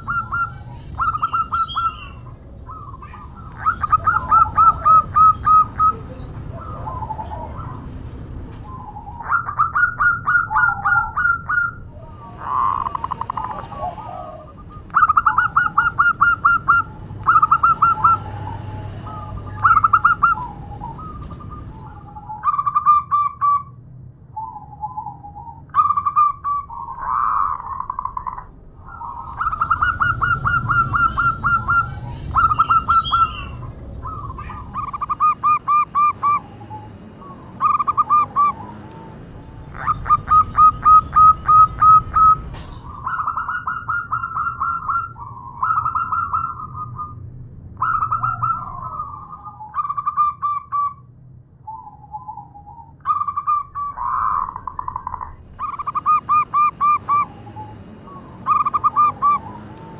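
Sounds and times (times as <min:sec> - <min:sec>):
dove cooing: 0:00.0 - 0:23.7, 0:24.4 - 0:47.2, 0:47.8 - 0:51.0, 0:51.7 - 0:59.9.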